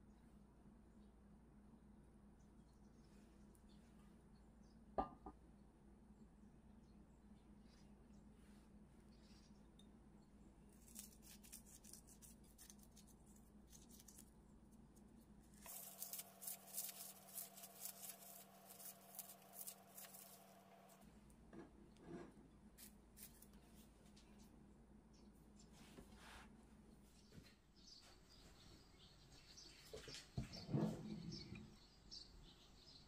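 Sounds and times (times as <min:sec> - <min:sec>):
dried seaweed crackling: 0:10.8 - 0:14.3, 0:15.4 - 0:21.0.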